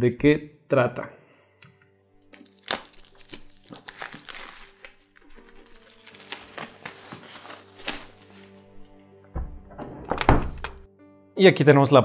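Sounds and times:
shrink wrap crinkling: 0:02.2 - 0:08.8.

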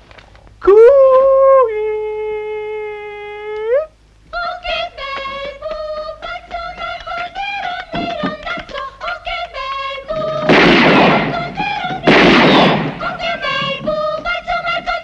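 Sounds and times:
gunshots with echoing tail: 0:10.3 - 0:13.6.

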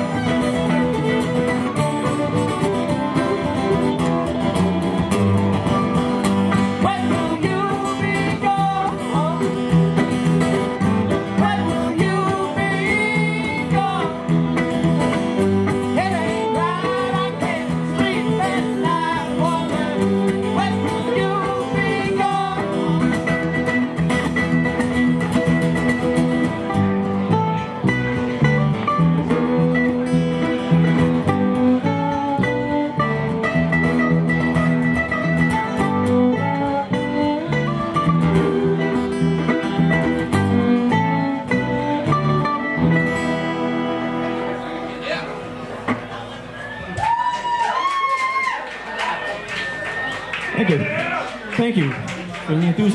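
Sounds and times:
mandolin: 0:00.0 - 0:46.9
acoustic guitar strumming: 0:00.0 - 0:47.0
upright bass: 0:00.0 - 0:47.1
fiddle: 0:00.0 - 0:50.8
person singing: 0:06.7 - 0:09.6, 0:11.3 - 0:14.4, 0:15.9 - 0:23.4.

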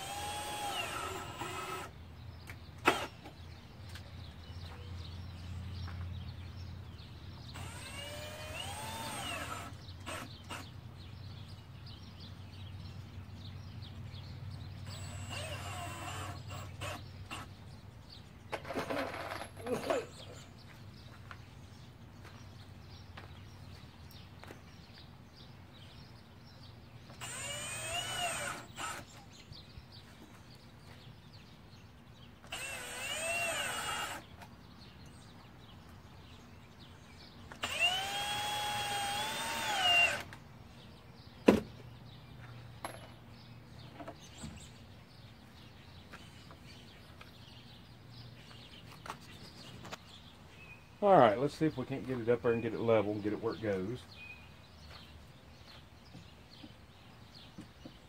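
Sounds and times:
cordless drill driving screws: 0:00.0 - 0:01.9, 0:02.8 - 0:03.3, 0:07.5 - 0:10.7, 0:14.8 - 0:17.6, 0:27.1 - 0:29.2, 0:32.4 - 0:34.3, 0:37.5 - 0:40.4.

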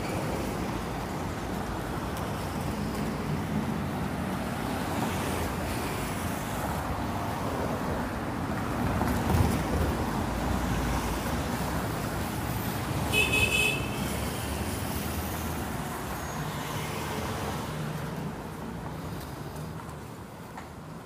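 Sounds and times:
city road traffic: 0:00.0 - 0:21.0.

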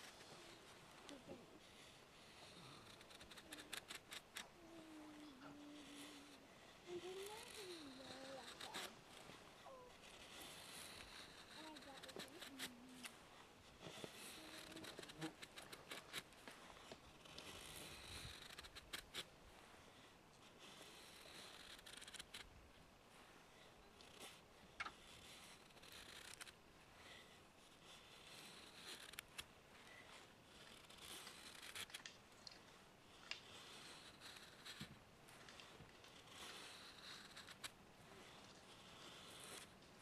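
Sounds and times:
knife scraping wood: 0:00.0 - 0:19.4, 0:20.4 - 0:22.5, 0:24.0 - 0:40.0.

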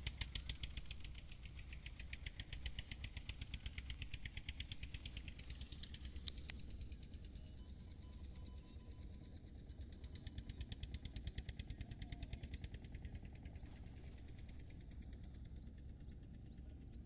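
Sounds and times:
fast run of sharp clicks: 0:00.0 - 0:07.0
low steady rumble: 0:00.0 - 0:17.0.

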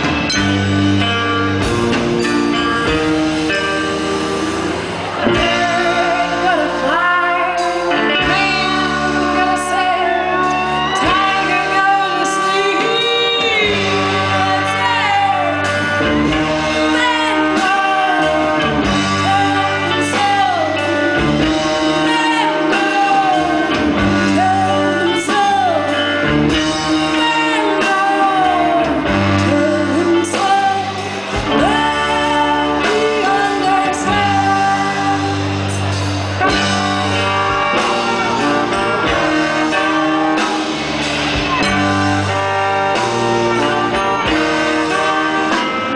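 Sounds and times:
live band with guitar: 0:00.0 - 0:45.9
woman singing into a microphone: 0:05.3 - 0:15.9, 0:16.6 - 0:35.6.

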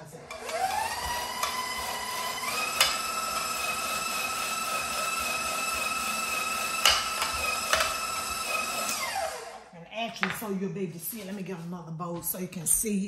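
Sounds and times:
stand mixer motor whining: 0:00.3 - 0:09.7.

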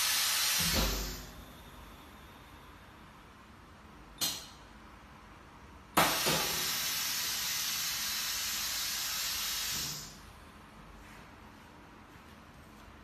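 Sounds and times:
air hissing: 0:00.0 - 0:01.7, 0:06.0 - 0:10.3.

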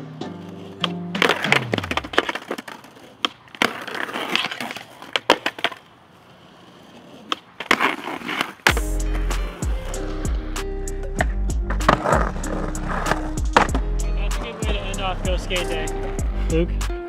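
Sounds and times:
music: 0:00.0 - 0:02.0, 0:08.7 - 0:17.0
skateboard popping and landing: 0:00.0 - 0:09.6, 0:11.2 - 0:14.6
skateboard wheels rolling on concrete: 0:00.0 - 0:17.0.

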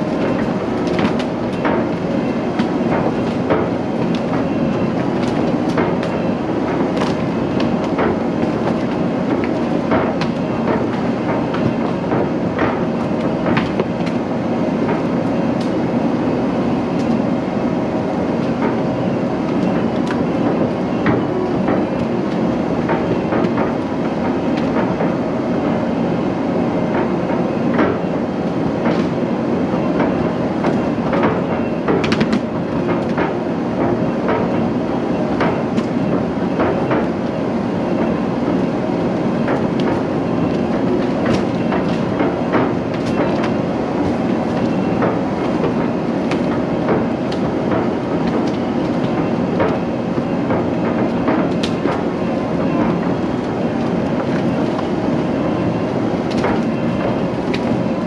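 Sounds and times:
machine clanks and rattles: 0:26.9 - 0:58.0.

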